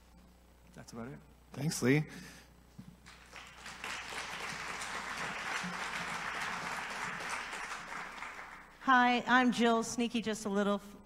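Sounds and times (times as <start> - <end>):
audience applauding: 3.0 - 8.8.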